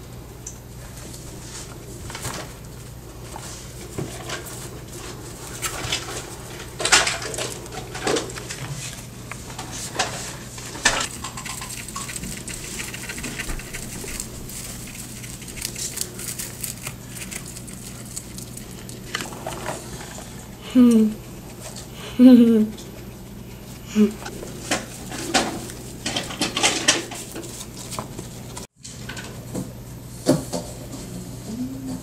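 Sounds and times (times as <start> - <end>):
guinea pig chewing: 0.9 - 22.0, 22.7 - 28.7
hay rustling: 8.6 - 20.4, 23.5 - 28.7.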